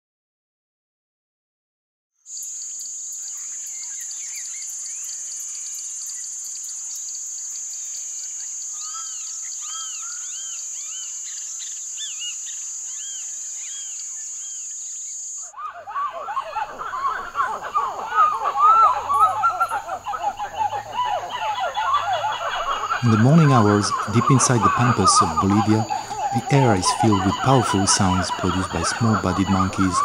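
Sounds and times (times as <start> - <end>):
insect high-pitched trill: 2.3 - 30.0
bird chirps: 8.8 - 30.0.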